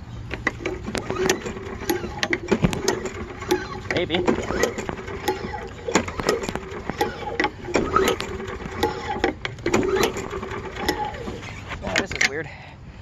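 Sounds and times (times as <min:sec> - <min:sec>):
mower engine running unevenly: 0:00.0 - 0:12.4
engine clicks and pops: 0:00.2 - 0:12.4.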